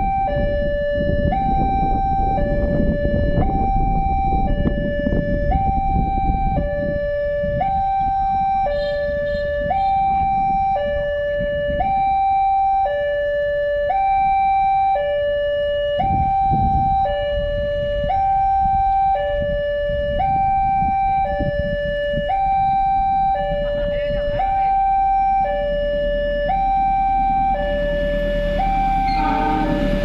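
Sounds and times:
low rumble: 0:25.6 - 0:30.0
level crossing alarm two-tone chime: 0:26.4 - 0:30.0.

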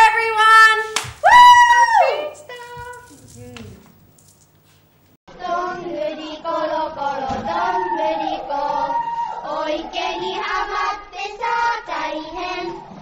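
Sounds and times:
group of voices singing: 0:05.4 - 0:13.0.

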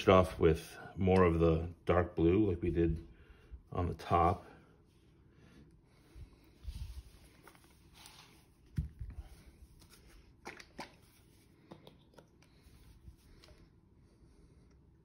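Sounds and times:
plastic bottle rustles and clicks: 0:07.3 - 0:13.6.

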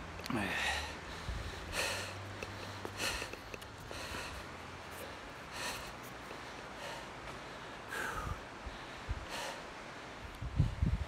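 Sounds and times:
man breathing heavily: 0:00.2 - 0:11.0
wind buffeting microphone: 0:01.0 - 0:02.7, 0:08.1 - 0:09.5, 0:10.2 - 0:11.0.

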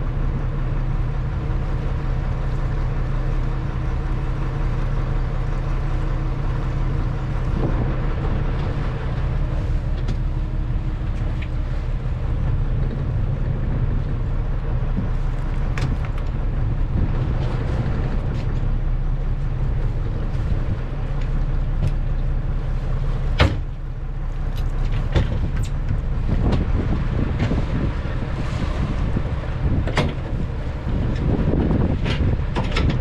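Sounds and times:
boat engine idling: 0:00.0 - 0:33.0
wind on the microphone: 0:07.0 - 0:09.9, 0:10.8 - 0:18.8, 0:25.1 - 0:33.0
knocks on deck and rail: 0:23.4 - 0:23.7.

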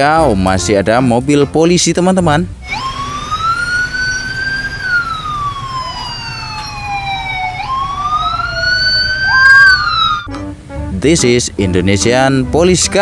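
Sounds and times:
police siren wailing: 0:02.6 - 0:10.3
second siren: 0:02.6 - 0:10.3.

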